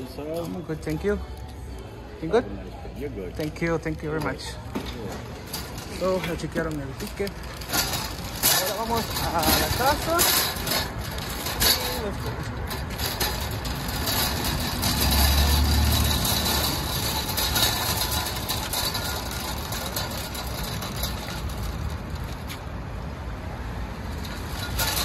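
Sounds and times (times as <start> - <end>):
shopping cart rattling on asphalt: 0.0 - 1.4, 3.2 - 25.0
cars driving past: 5.2 - 25.0.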